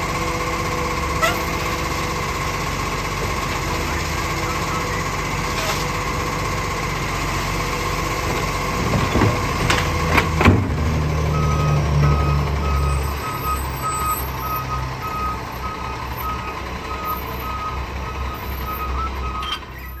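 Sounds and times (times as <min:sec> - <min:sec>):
garbage truck engine and hydraulics: 0:00.0 - 0:20.0
truck warning beeps: 0:00.1 - 0:06.7, 0:11.1 - 0:20.0.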